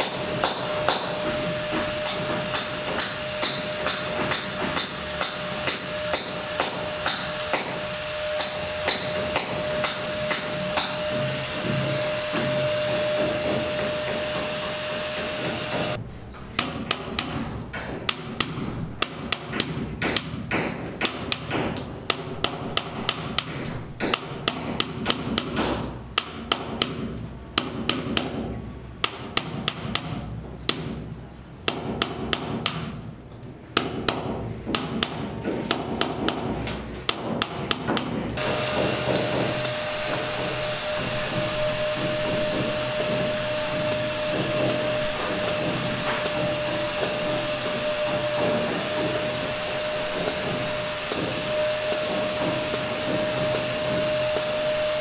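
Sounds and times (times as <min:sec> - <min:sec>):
hammer blows ringing clink: 0:00.0 - 0:14.8, 0:37.1 - 0:55.0
paint sprayer whining hum: 0:00.0 - 0:16.0, 0:38.4 - 0:55.0.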